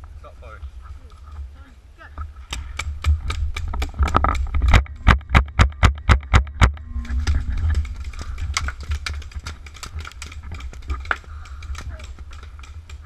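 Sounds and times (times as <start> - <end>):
wind noise: 2.2 - 13.0
camera handling rumble: 3.4 - 13.0.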